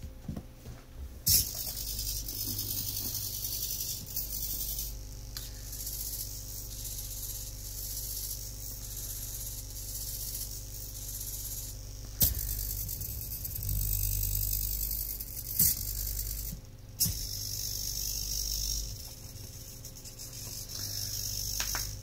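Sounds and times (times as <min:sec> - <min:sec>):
servo motors buzzing and whining: 0:01.3 - 0:22.0
sharp click: 0:21.5 - 0:22.0.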